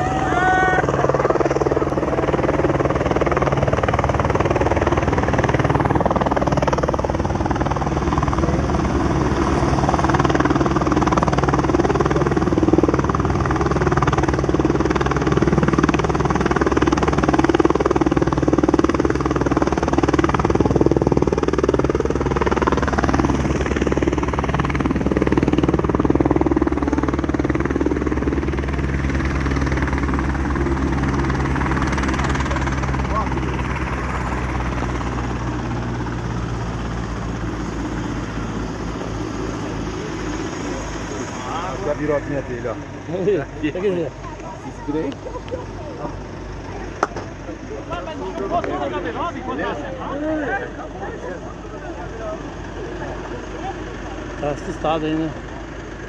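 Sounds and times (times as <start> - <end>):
helicopter rotor and engine: 0.0 - 56.0.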